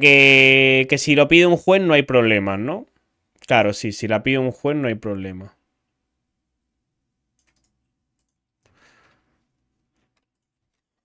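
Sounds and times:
computer keyboard and mouse clicks: 7.4 - 8.4.

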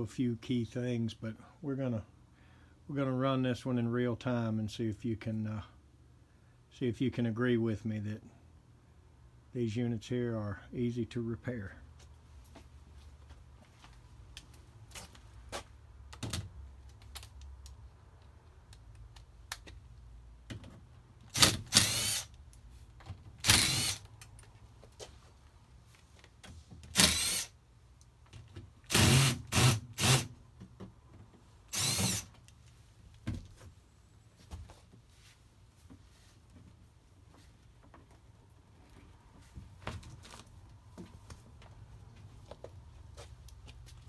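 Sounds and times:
cordless drill whirring: 21.3 - 22.4, 23.4 - 24.1, 26.9 - 27.6, 28.9 - 30.3, 31.7 - 32.3.

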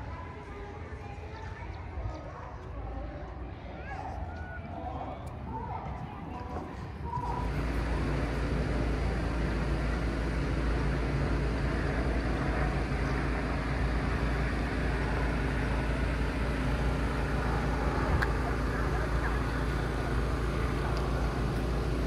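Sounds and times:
engine drone with deep rumble: 5.3 - 22.0.

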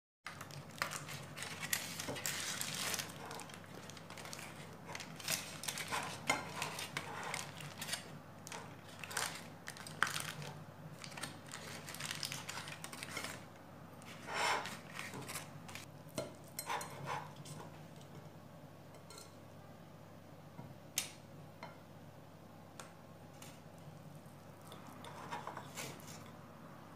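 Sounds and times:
aluminium foil crinkling: 0.3 - 15.9.

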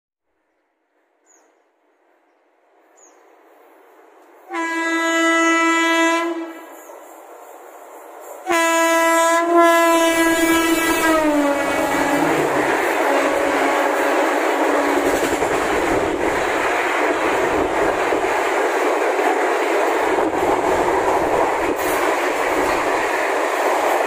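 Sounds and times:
train rushing and clattering past: 2.8 - 24.0
train horn blasts: 4.5 - 6.8, 8.4 - 15.1.

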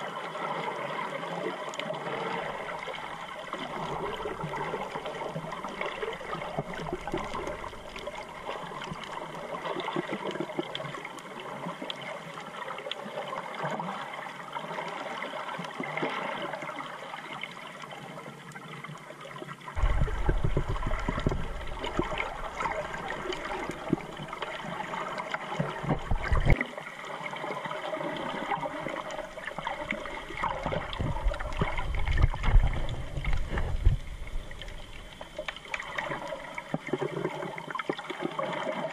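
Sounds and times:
water gurgling underwater: 0.0 - 18.8, 19.4 - 38.9
fine constant crackle: 0.0 - 38.9
low rumbling: 19.8 - 23.8, 30.2 - 35.3.

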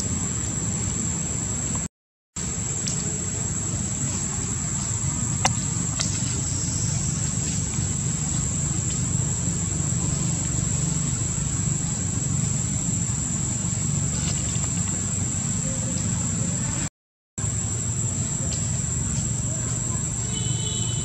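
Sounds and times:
low rumble: 0.0 - 16.6.

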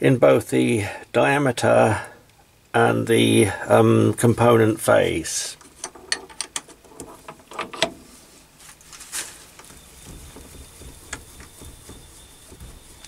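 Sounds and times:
metal clicks and knocks: 5.6 - 8.1, 9.6 - 13.0
quiet handling of tools: 5.6 - 13.0.

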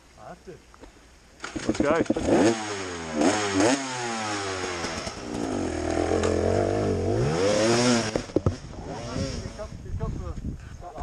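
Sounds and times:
dirt bike engine revving: 1.4 - 9.8.

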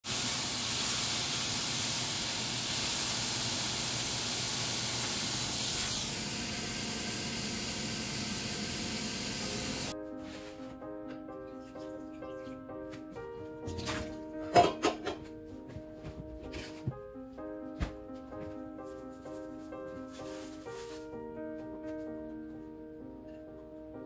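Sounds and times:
food sizzling in a frying pan: 0.0 - 10.0
music: 9.9 - 24.0.

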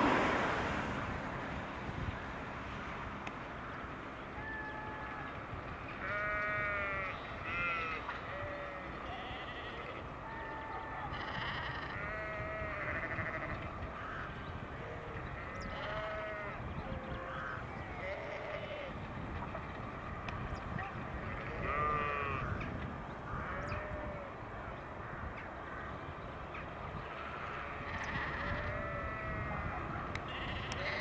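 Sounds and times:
sheep bleating: 6.0 - 13.6, 14.9 - 16.6, 17.2 - 19.0, 21.2 - 22.6, 27.8 - 31.0.

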